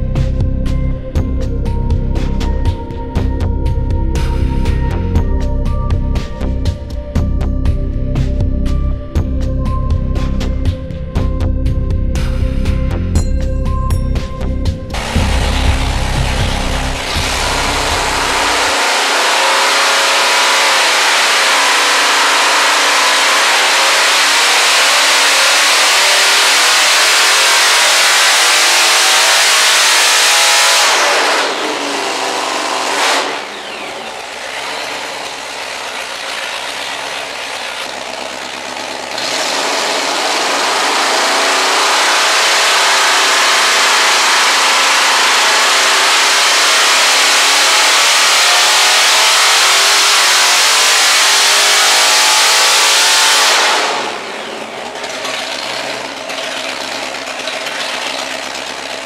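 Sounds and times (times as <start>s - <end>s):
supercharged engine revving high: 14.9s - 59.0s.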